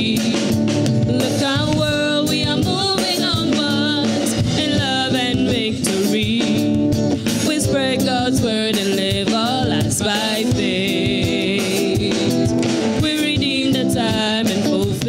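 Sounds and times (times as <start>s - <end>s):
instrumental accompaniment with beat: 0.0s - 15.0s
group singing gospel song: 7.3s - 15.0s.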